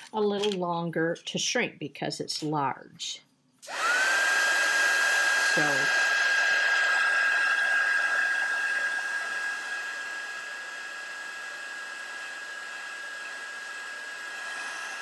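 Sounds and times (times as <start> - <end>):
heat gun blowing hot air: 3.6 - 15.0.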